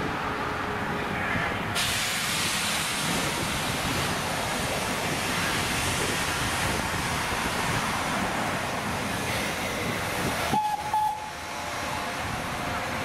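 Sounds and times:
steam locomotive hissing: 1.8s - 13.0s
steam whistle toots: 10.5s - 11.4s.

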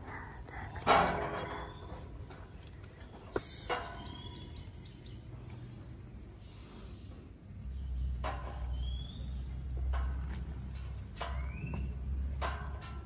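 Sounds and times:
bird chirps: 3.4s - 5.3s, 7.7s - 9.6s, 11.1s - 12.1s.

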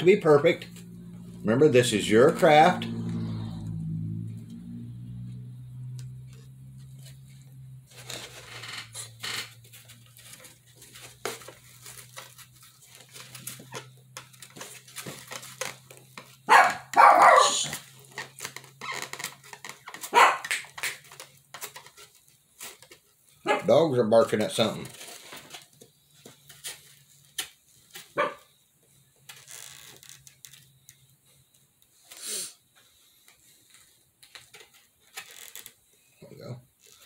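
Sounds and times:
dogs barking: 16.5s - 17.7s, 20.0s - 20.6s, 23.4s - 23.7s, 28.2s - 28.5s.

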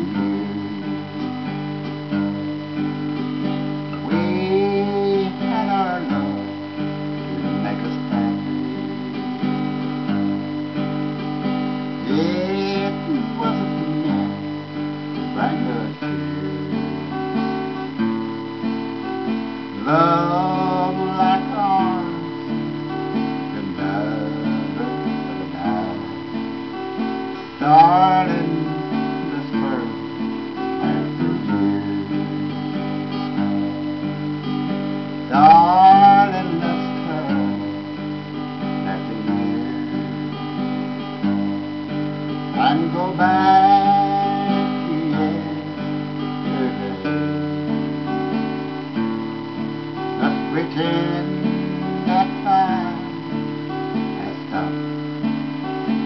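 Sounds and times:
acoustic guitar strumming: 0.0s - 56.0s
person vocalizing: 12.1s - 14.4s.

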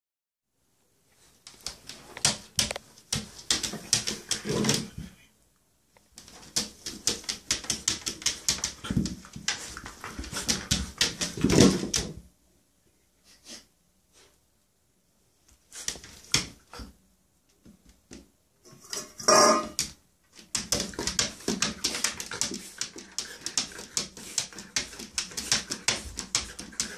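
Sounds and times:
puppy claws scratching plastic: 20.4s - 26.9s.

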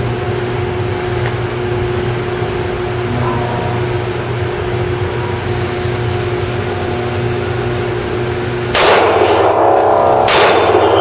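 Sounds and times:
ventilation hum: 0.0s - 11.0s
loud dense sound: 2.9s - 6.0s.

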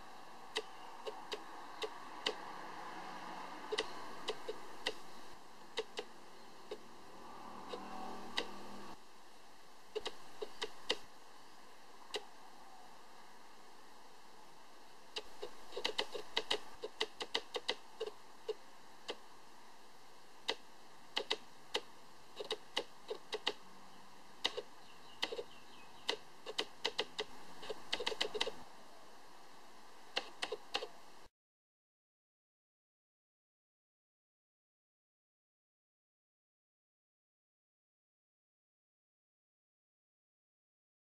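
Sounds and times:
faint steady hiss: 0.0s - 31.3s
sharp clicks and taps: 10.0s - 11.0s, 15.2s - 18.2s, 21.2s - 23.6s, 24.4s - 28.6s.

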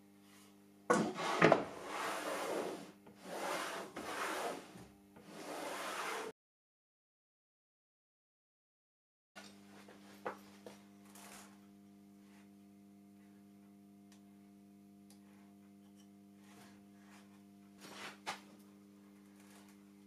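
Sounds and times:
faint steady hum: 9.4s - 20.0s.

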